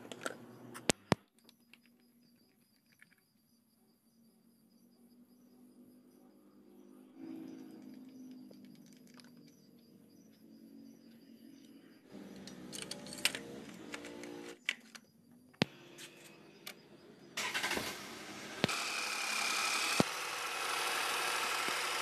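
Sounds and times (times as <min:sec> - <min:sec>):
car engine starting and running: 0:12.1 - 0:14.6, 0:16.5 - 0:22.0.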